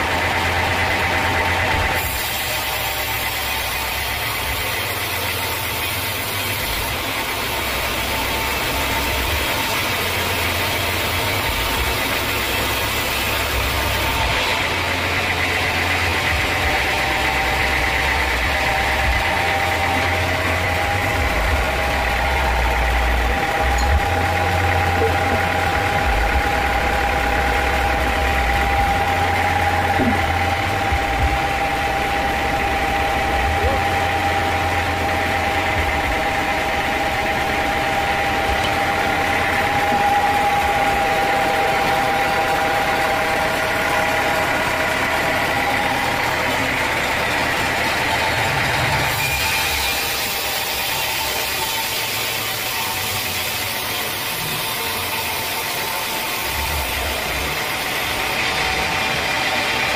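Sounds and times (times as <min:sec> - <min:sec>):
band saw blade whining: 0:00.0 - 0:59.9
low uneven mill drive drone: 0:06.6 - 0:49.0.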